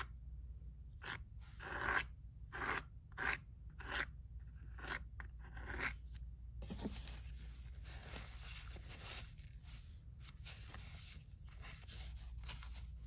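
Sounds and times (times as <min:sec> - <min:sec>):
palette knife scraping paste: 0:00.8 - 0:13.0
soft rustle: 0:06.6 - 0:13.0.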